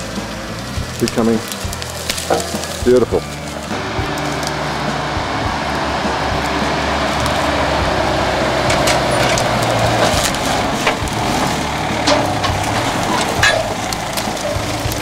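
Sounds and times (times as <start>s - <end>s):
branches snapping and scraping: 0.0s - 15.0s
vehicle engine running at low speed: 0.0s - 15.0s.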